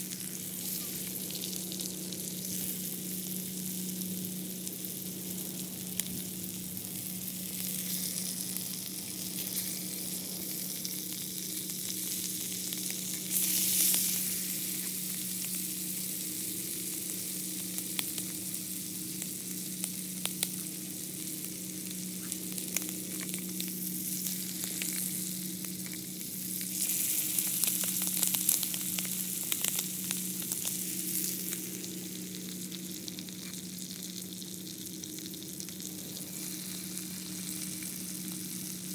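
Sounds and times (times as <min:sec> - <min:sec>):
fish frying in butter: 0:00.0 - 0:38.9.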